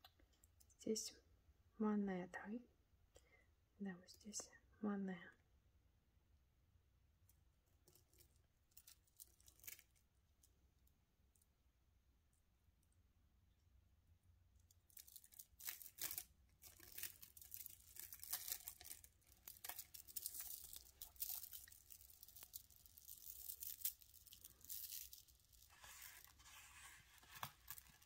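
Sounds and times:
packaging rustling and crinkling: 7.9s - 10.0s, 14.9s - 28.0s.

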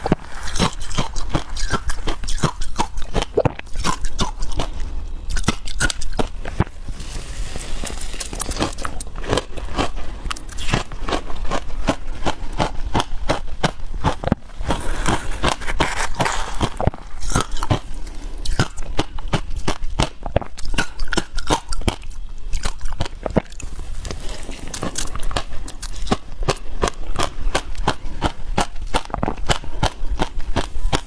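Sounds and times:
ice crunching: 6.5s - 12.0s, 14.4s - 18.8s, 23.5s - 26.2s.

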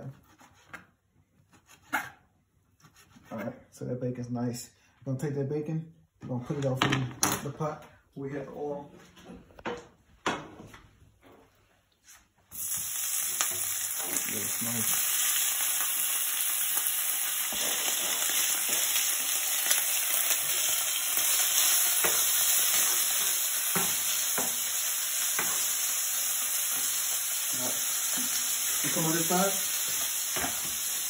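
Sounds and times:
bacon sizzling in oil: 12.5s - 31.0s.

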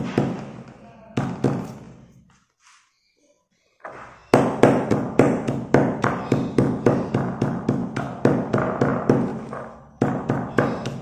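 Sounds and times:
stone pestle pounding in mortar: 4.4s - 11.0s.

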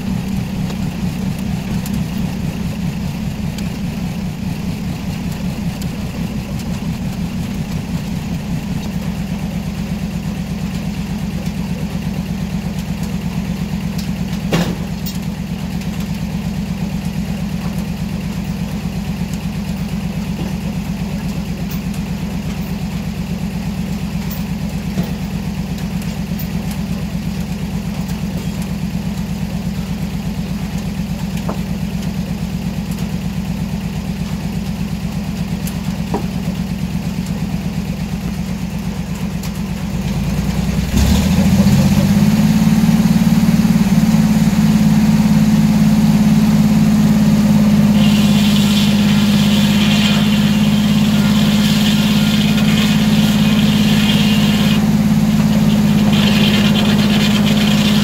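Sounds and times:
sawmill engine running: 0.0s - 58.0s
saw carriage knock: 47.9s - 58.0s.

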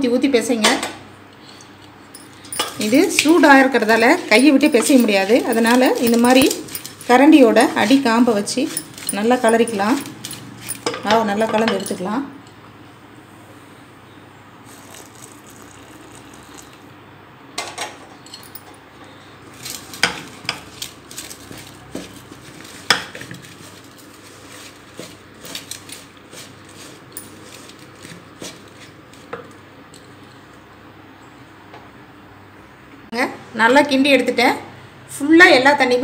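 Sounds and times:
ladle scraping and knocking metal bowl: 2.2s - 12.1s, 20.0s - 30.1s.

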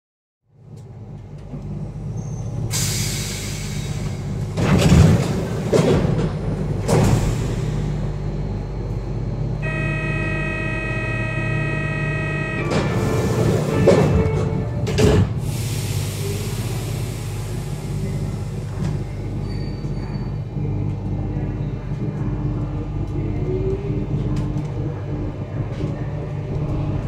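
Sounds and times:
train door clunks: 2.8s - 7.8s, 12.6s - 15.7s
buzzing door warning tone: 9.4s - 15.2s
hiss: 15.4s - 18.6s.

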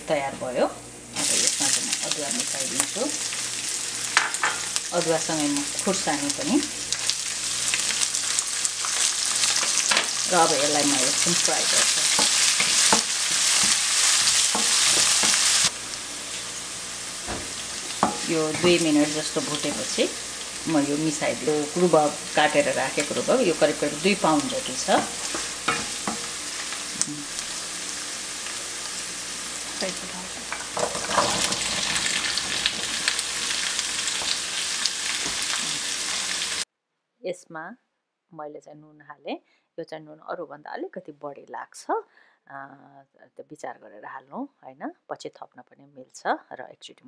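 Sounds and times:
spices sizzling in hot oil: 0.1s - 36.6s
wooden spatula scraping pan: 30.4s - 36.4s.

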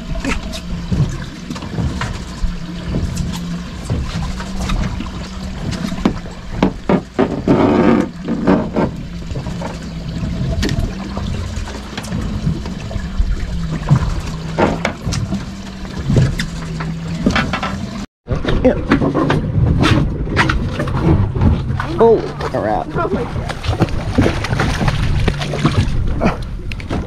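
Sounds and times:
boat engine hum: 0.0s - 27.0s
wind rumbling on microphone: 0.0s - 27.0s.

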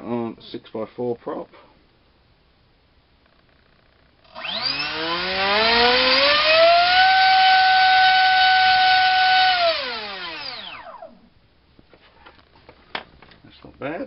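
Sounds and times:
electric motor propeller whine: 4.2s - 11.2s.

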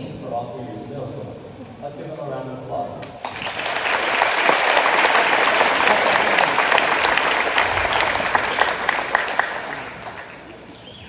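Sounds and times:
audience applauding: 3.2s - 10.9s.

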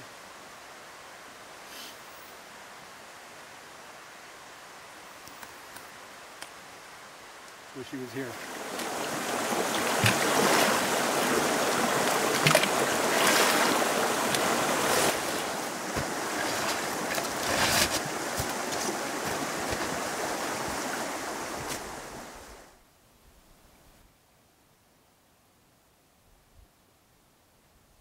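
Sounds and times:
creek water rushing: 0.0s - 22.8s
splashes of wading: 8.4s - 22.1s.

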